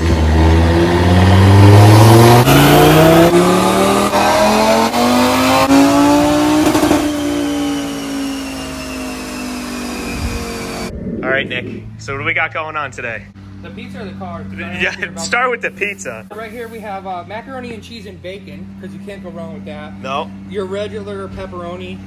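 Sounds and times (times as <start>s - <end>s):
car engine revving: 0.0s - 12.4s.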